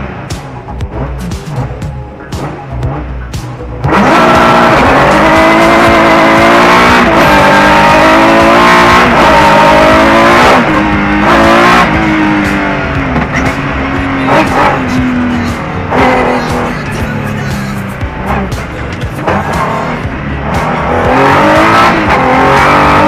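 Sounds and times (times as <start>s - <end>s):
car engine revving and upshifting: 0.0s - 23.0s.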